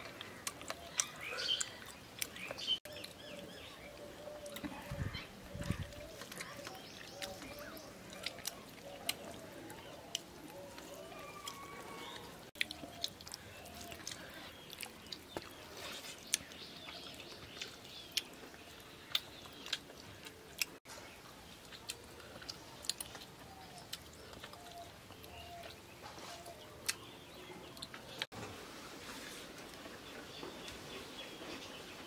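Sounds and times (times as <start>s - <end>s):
people chewing food: 0.0s - 32.0s.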